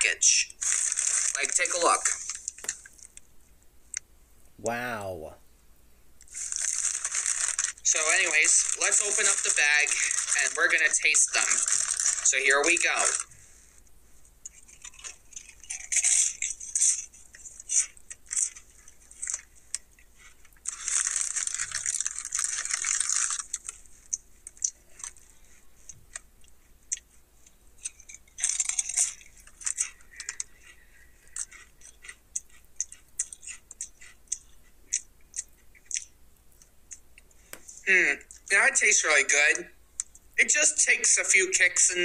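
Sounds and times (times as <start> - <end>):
chips crunching: 0.3 - 3.2, 6.2 - 13.3, 14.5 - 25.3, 27.8 - 36.7
chip bag crinkling: 0.5 - 3.2, 6.3 - 13.3, 14.5 - 25.3, 27.8 - 36.1.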